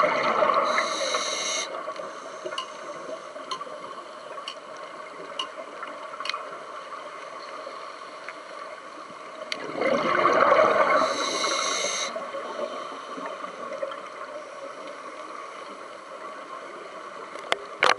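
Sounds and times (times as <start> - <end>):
muffled underwater background: 0.0 - 5.6, 10.8 - 15.6
faint clicks: 0.7 - 8.7, 9.4 - 9.6
bubbles from diver exhaling: 9.6 - 11.0.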